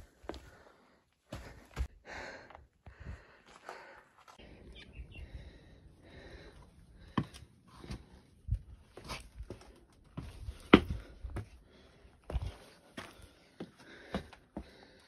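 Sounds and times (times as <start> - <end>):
footsteps on rock and sand: 0.0 - 0.7, 1.3 - 4.4, 7.0 - 11.6, 12.2 - 14.8.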